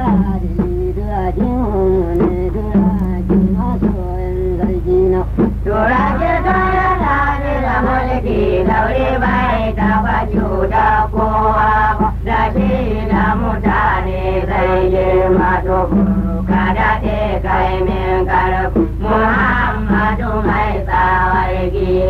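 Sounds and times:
steady musical accompaniment: 0:05.3 - 0:22.0.

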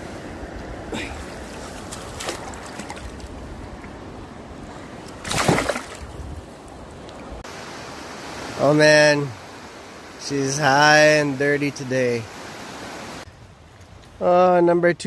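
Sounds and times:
river rushing: 0:00.0 - 0:13.3
water splashing: 0:00.9 - 0:07.4.

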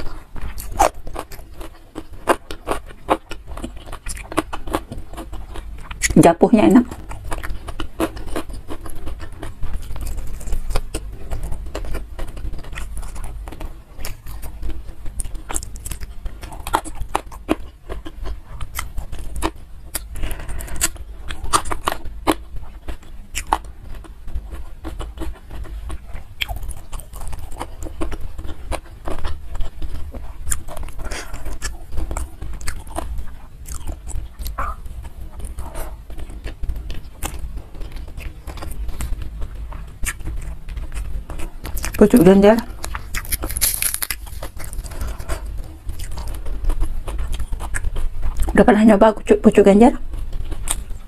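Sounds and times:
person chewing food: 0:00.0 - 0:06.2, 0:06.8 - 0:48.6, 0:50.0 - 0:51.0
wet mouth clicks and crunches: 0:42.8 - 0:45.0.

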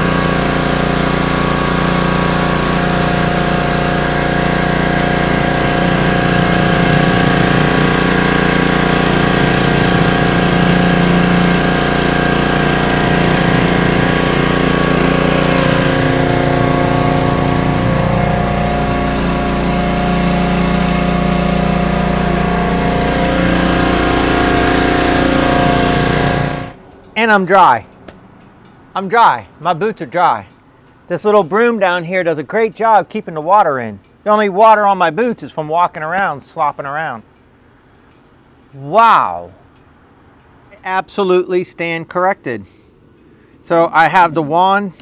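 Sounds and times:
high-pressure spray hissing on concrete: 0:00.0 - 0:26.8
pressure washer engine running: 0:00.0 - 0:27.4.

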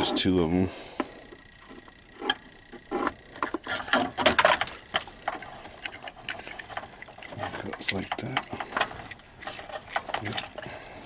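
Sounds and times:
plastic connectors rattling and clicking: 0:03.4 - 0:10.7.

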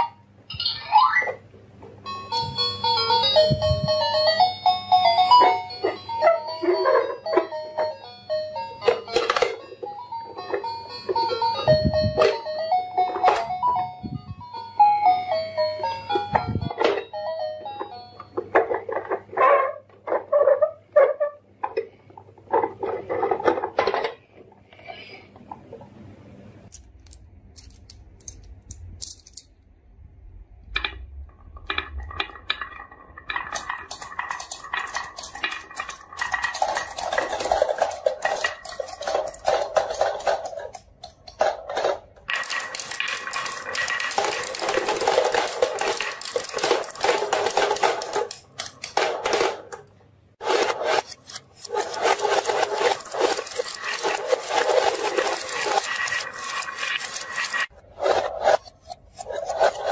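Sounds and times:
marbles rattling down wooden run: 0:31.8 - 0:40.8, 0:41.5 - 0:48.6, 0:50.4 - 0:57.7.

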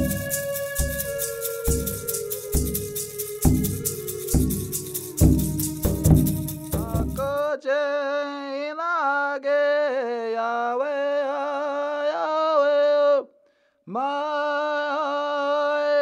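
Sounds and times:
drum and rattle music: 0:00.0 - 0:07.4
man chanting: 0:00.0 - 0:13.2.

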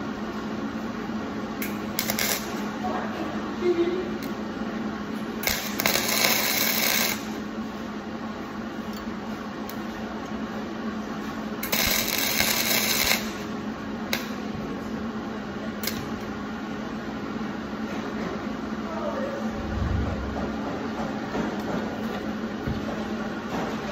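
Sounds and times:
steady hum: 0:00.0 - 0:23.9
welding arc crackling: 0:01.6 - 0:02.9, 0:05.2 - 0:07.5, 0:11.6 - 0:14.4, 0:15.8 - 0:16.3.

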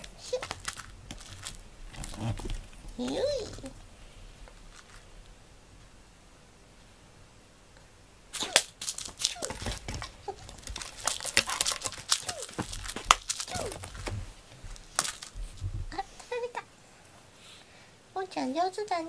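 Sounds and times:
cat claws scratching cardboard: 0:08.4 - 0:15.6.

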